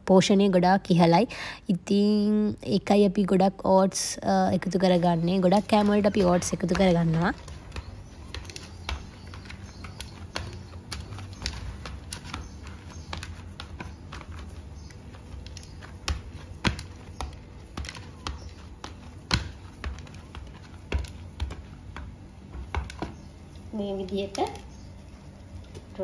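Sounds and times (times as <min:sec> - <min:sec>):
hands kneading dough in a bowl: 0:02.0 - 0:26.0.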